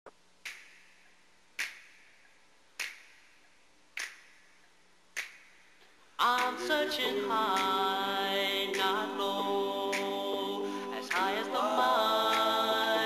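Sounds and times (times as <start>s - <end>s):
finger snaps: 0.4s - 7.9s, 8.7s - 9.0s, 9.9s - 11.5s, 12.3s - 12.6s.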